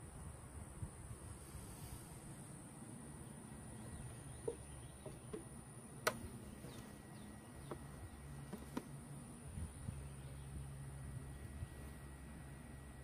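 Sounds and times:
sharp little clicks: 4.5 - 6.8.

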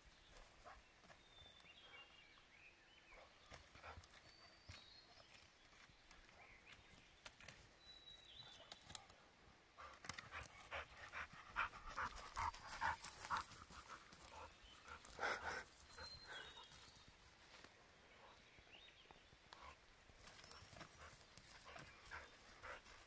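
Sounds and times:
dog panting: 9.8 - 16.8, 20.6 - 23.0.

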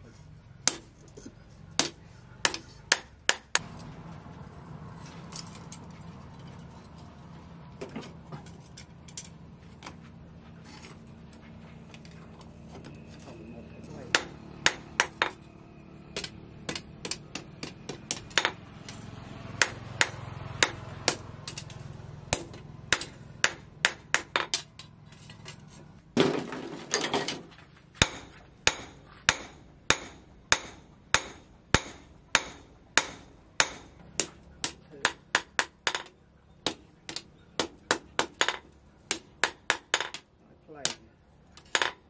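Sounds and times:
hammer striking metal on anvil: 14.1 - 15.4, 28.0 - 40.2.

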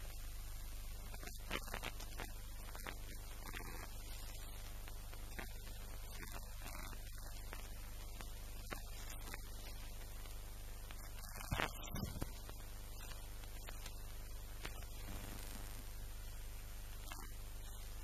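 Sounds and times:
faint hiss: 0.0 - 18.0
low hum: 11.0 - 15.9.

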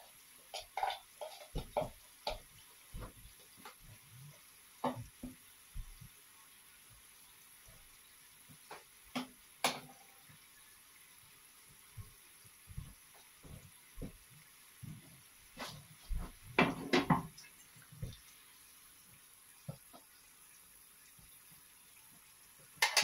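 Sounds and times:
oil sizzling with pops: 0.0 - 23.0
knocks and clatter in pan: 0.5 - 3.8, 4.8 - 6.0, 8.6 - 10.0, 15.6 - 17.4, 22.7 - 23.0.

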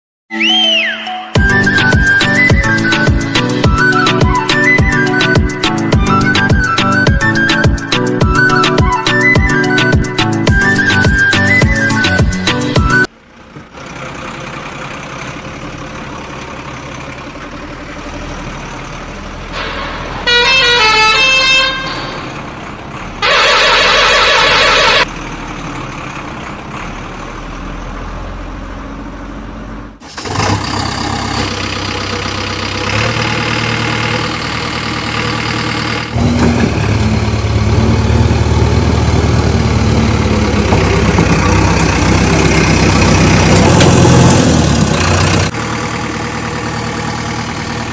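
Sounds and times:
heavier engine running: 1.4 - 47.9
truck engine running: 1.4 - 47.9
truck horn honking: 19.5 - 22.3, 23.2 - 25.1.

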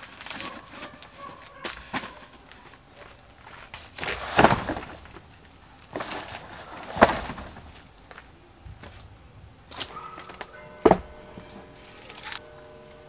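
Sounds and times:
corrugated sheet knocks and rattles: 4.0 - 5.3, 5.9 - 7.8, 10.8 - 11.6.

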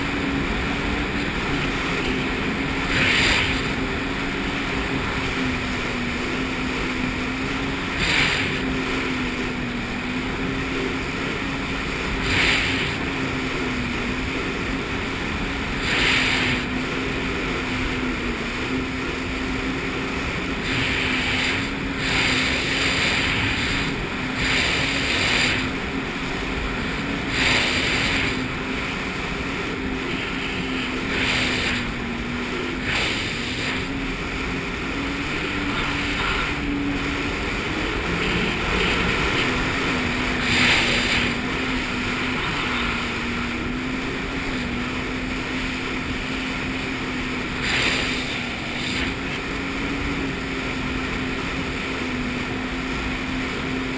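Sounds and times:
jet ski engine running: 0.0 - 53.9
water spray rushing: 0.0 - 53.9.

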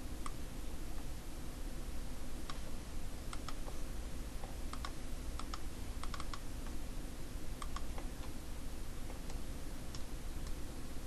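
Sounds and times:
steady low hum: 0.0 - 11.0
computer mouse clicks: 2.4 - 2.7, 3.3 - 3.8, 4.4 - 6.8, 7.6 - 8.4, 9.1 - 10.6
keyboard clicks: 3.3 - 3.8, 4.4 - 6.8, 7.6 - 8.4.

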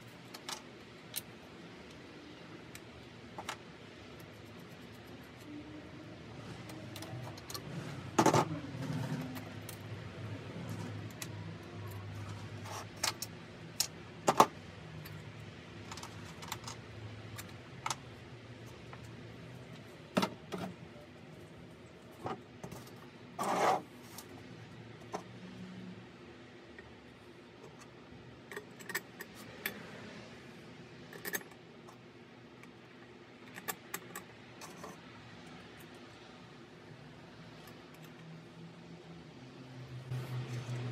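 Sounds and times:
metal parts clinking and clanking: 15.8 - 18.0.

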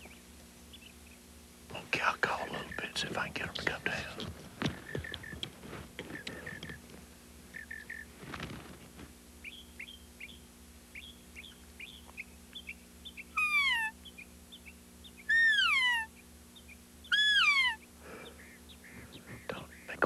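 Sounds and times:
elk call chirps: 11.0 - 14.1, 15.2 - 16.3, 17.0 - 19.9
elk call mews falling in pitch: 17.1 - 17.8.

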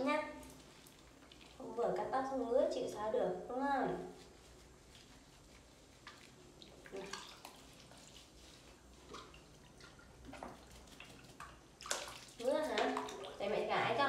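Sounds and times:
water splashing in plastic basin: 6.0 - 14.0.

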